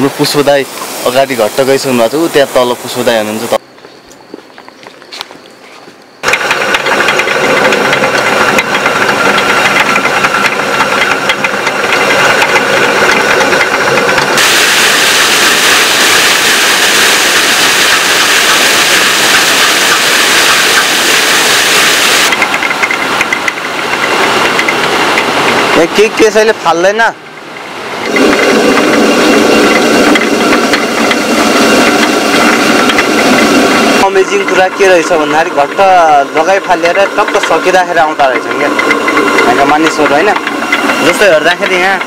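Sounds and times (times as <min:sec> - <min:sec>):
water rushing: 0:00.0 - 0:03.6, 0:06.2 - 0:42.0
millstone clattering: 0:06.2 - 0:14.6, 0:27.4 - 0:42.0.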